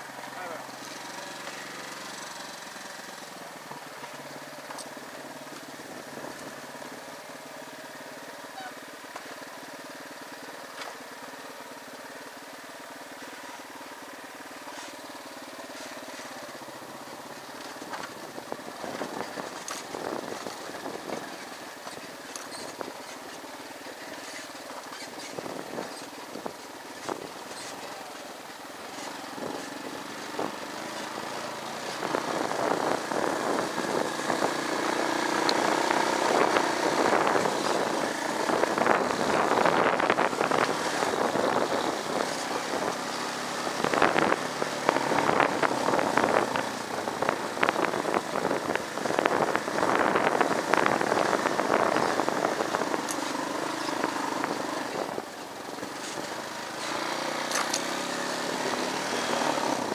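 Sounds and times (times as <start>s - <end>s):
motorcycle engine running: 0.0s - 59.9s
bike knocking and rattling: 14.6s - 58.0s.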